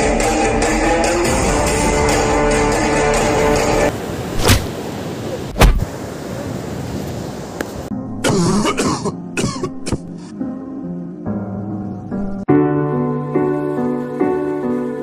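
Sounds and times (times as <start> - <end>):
man coughing and groaning: 8.2 - 10.1.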